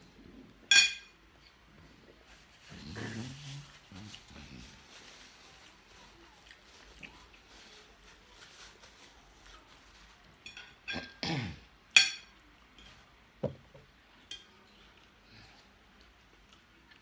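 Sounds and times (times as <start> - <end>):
fork clinking on ceramic plate: 0.7 - 1.1.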